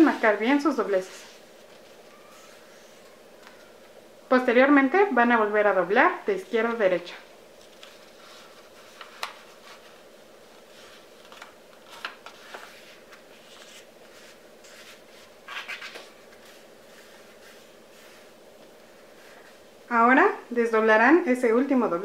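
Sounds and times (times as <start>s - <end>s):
paper folding and crinkling: 1.2s - 3.6s, 7.5s - 18.3s.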